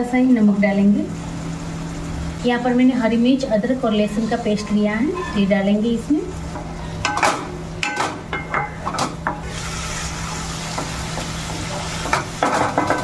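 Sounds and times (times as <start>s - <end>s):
vegetables sizzling in oil: 0.3s - 4.6s, 9.2s - 13.0s.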